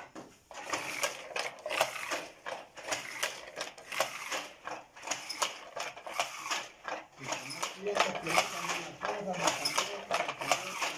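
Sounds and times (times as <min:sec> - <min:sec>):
wooden loom clattering: 0:00.0 - 0:10.9.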